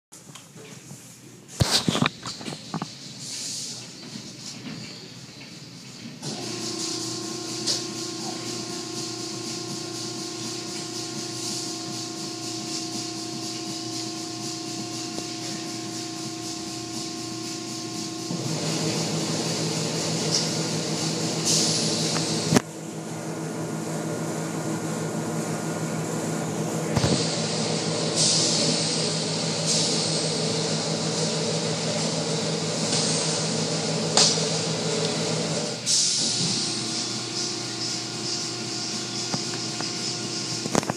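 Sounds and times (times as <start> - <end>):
machine hum: 6.2 - 40.9
spray and brushes hissing on glass: 6.3 - 22.6, 27.0 - 34.8
sharp slap: 34.2 - 34.4.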